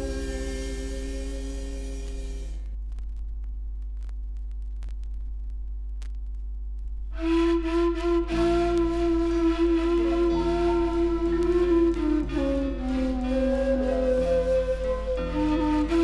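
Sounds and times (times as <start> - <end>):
low drone: 0.0 - 2.8.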